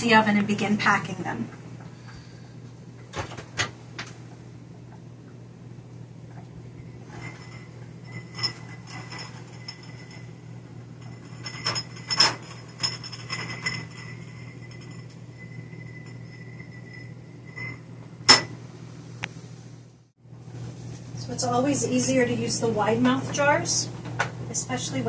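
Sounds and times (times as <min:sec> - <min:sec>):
low steady hum: 0:00.0 - 0:25.0
glass jars clinking: 0:06.7 - 0:18.6.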